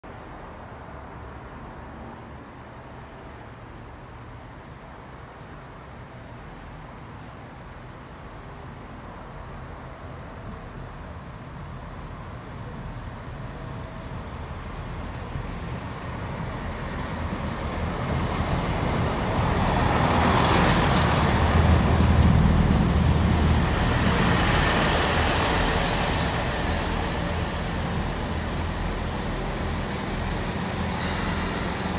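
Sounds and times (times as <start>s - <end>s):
train engine drone: 0.2s - 31.9s
train wheel noise: 12.7s - 31.9s
brief hiss: 30.9s - 31.9s.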